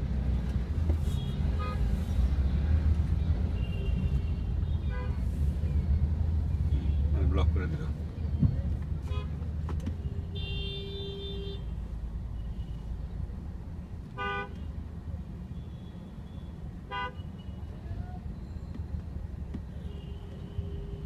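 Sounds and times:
low rumble of engines: 0:00.0 - 0:21.0.

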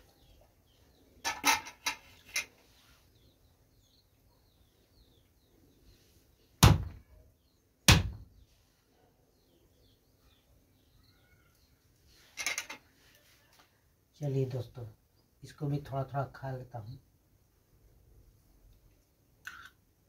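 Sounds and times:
faint bird chirps: 0:02.1 - 0:14.4
fruit struck on wooden block: 0:06.6 - 0:07.0, 0:07.9 - 0:08.2.

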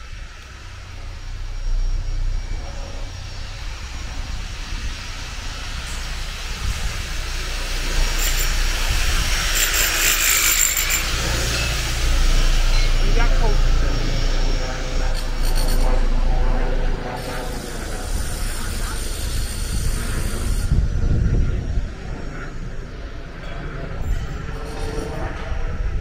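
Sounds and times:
steady low rumble: 0:00.0 - 0:26.0
tool rasping hiss: 0:02.3 - 0:16.0, 0:17.2 - 0:20.8.

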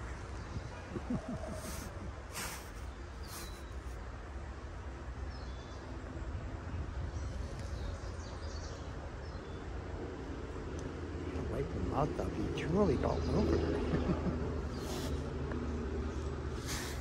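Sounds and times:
distant traffic rumble: 0:00.0 - 0:17.0
faint bird chirps: 0:00.4 - 0:04.0.

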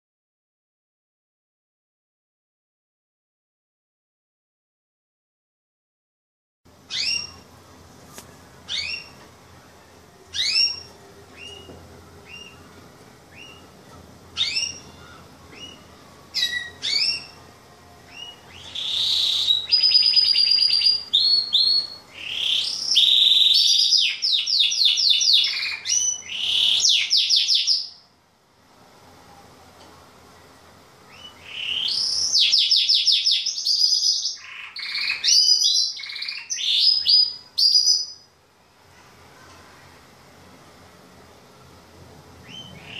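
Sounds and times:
canary singing: 0:06.7 - 0:28.1, 0:31.0 - 0:38.3, 0:42.4 - 0:42.9.

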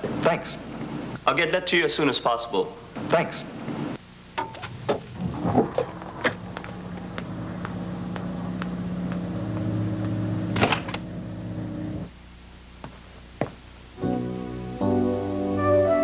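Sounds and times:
machine hum: 0:02.8 - 0:15.6.

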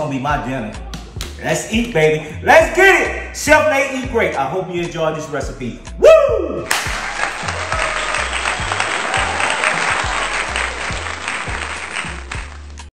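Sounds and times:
background music with bass beat: 0:00.0 - 0:12.9
applause: 0:06.7 - 0:12.9.

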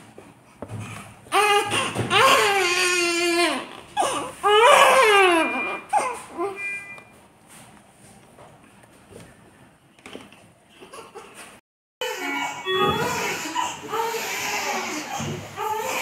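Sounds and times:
newborn baby crying: 0:01.3 - 0:06.6, 0:12.0 - 0:16.0.

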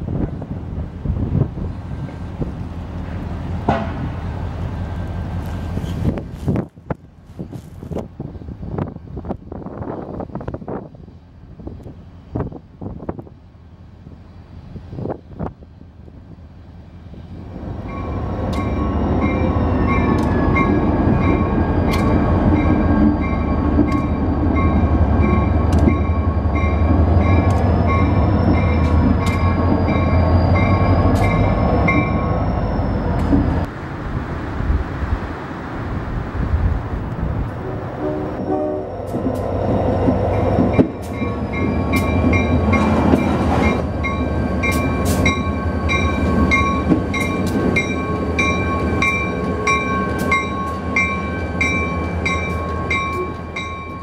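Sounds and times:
locomotive bell ringing: 0:17.8 - 0:33.2, 0:40.3 - 0:54.0.

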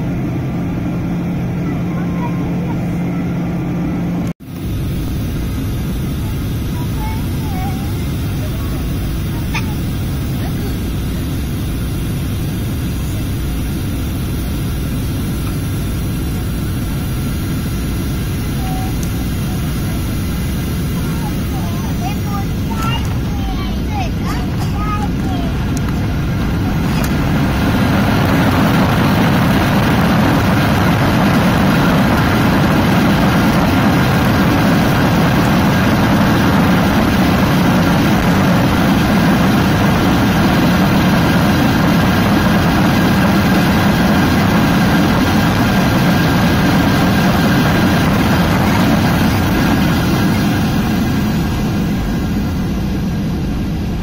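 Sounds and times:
jet engine noise: 0:00.0 - 0:54.0
runway rumble: 0:00.0 - 0:54.0.

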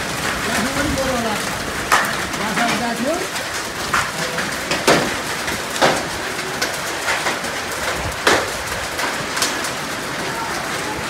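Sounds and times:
rain and hail pelting concrete: 0:00.0 - 0:11.0
sharp hailstone hits: 0:01.8 - 0:03.2, 0:03.9 - 0:09.7.

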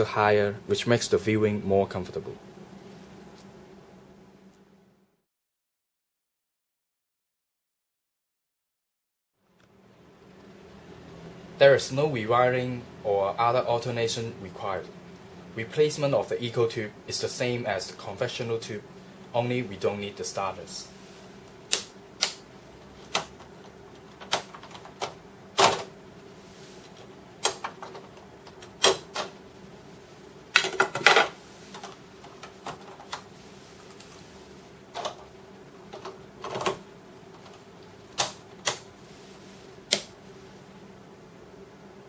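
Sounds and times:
steady low hum: 0:00.0 - 0:05.2, 0:09.4 - 0:42.0
switch clicks: 0:21.7 - 0:22.4.

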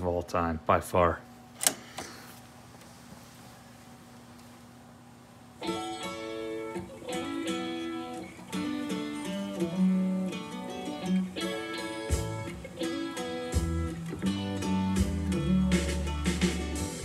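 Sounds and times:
faint steady hum: 0:00.0 - 0:17.0
guitar song from cassette: 0:05.6 - 0:17.0.

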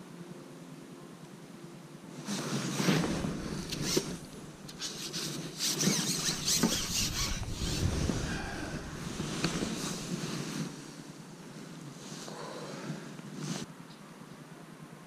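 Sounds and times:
rustling: 0:02.2 - 0:11.1
pole sections scraping: 0:02.3 - 0:10.8.

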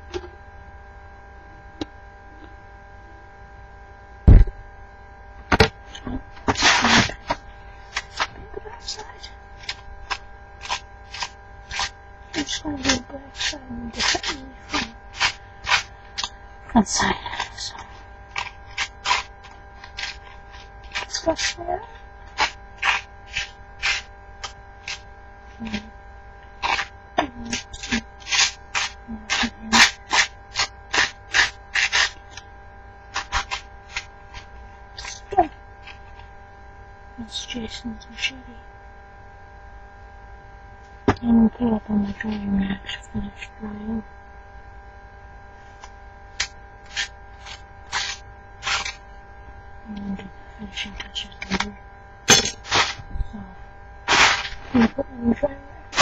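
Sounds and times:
electrical mains hum: 0:00.0 - 0:56.0
heavy thump: 0:04.3 - 0:04.6
scratchy rubbing strokes: 0:06.4 - 0:16.3, 0:17.5 - 0:25.8, 0:26.6 - 0:32.4, 0:33.1 - 0:36.3, 0:46.8 - 0:49.0, 0:52.6 - 0:53.1, 0:54.0 - 0:55.0.

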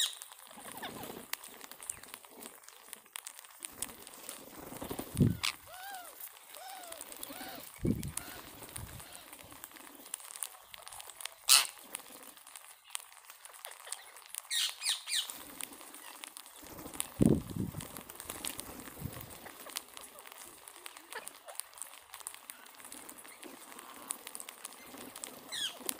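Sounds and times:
beaks clicking on seed: 0:00.0 - 0:25.9
shrill parakeet calls: 0:11.5 - 0:11.7, 0:14.5 - 0:15.3.

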